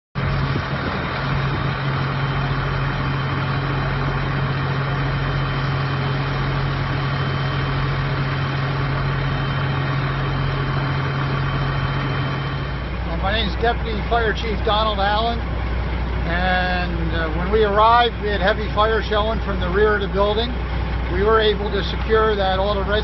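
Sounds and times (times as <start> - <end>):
fire truck engine running: 0.2 - 23.0.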